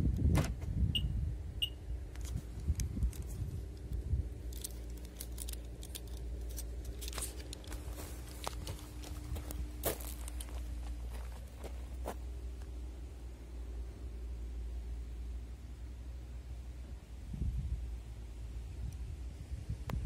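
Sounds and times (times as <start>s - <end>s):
key fob clicks and rattles: 2.2s - 9.0s.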